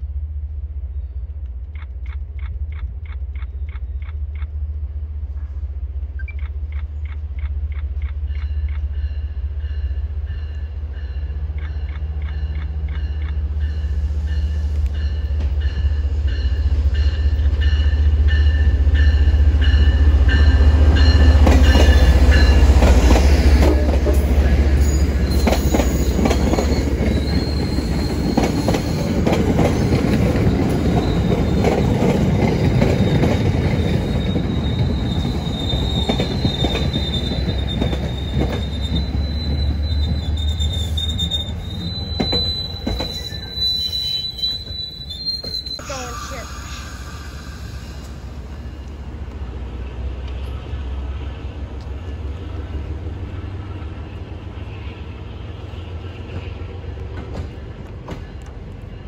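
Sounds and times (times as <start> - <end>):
diesel locomotive engine drone: 0.0 - 59.0
train coaches clattering: 5.3 - 51.0, 55.5 - 59.0
thin wheel squeal: 34.0 - 48.0.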